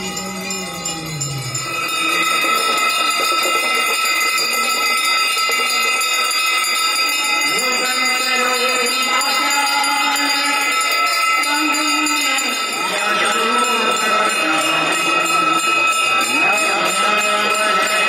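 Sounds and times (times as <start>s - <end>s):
hand bells ringing: 0.0s - 18.0s
person singing: 7.5s - 18.0s.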